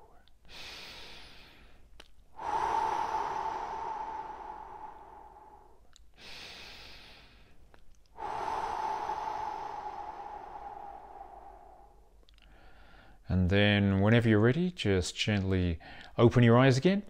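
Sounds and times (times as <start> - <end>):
man breathing deeply: 0.4 - 13.2
mouth clicks: 1.9 - 2.3.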